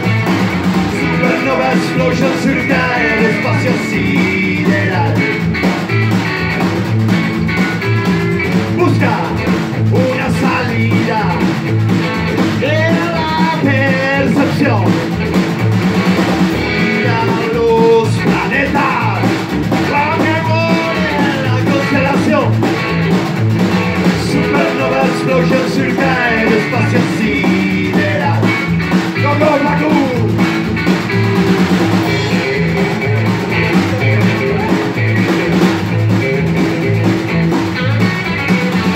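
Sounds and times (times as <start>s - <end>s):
live rock and roll band: 0.0s - 38.9s
person shouting or singing: 1.0s - 5.2s, 16.8s - 22.5s, 24.2s - 28.5s.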